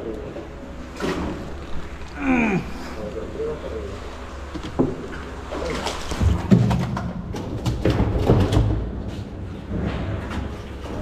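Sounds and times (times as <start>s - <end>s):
knocks and thumps in boat: 4.5s - 11.0s.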